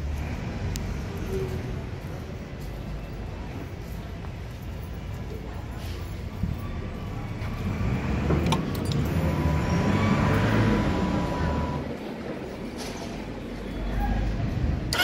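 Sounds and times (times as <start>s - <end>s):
vehicle passing: 7.3s - 12.6s.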